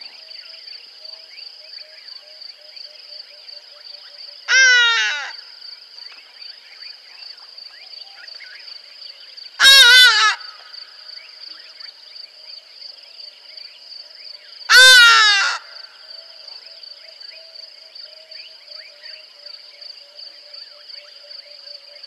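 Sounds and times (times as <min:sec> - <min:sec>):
high-pitched insect chorus: 0:00.0 - 0:22.0
large bird harsh calls: 0:04.5 - 0:05.4, 0:09.6 - 0:10.6, 0:14.7 - 0:15.8.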